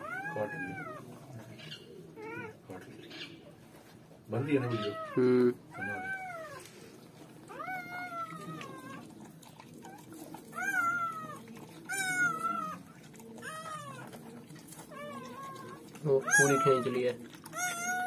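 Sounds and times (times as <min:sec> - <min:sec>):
puppy squealing: 0:00.0 - 0:02.6, 0:04.4 - 0:06.6, 0:07.5 - 0:09.1, 0:09.9 - 0:14.2, 0:14.8 - 0:18.0.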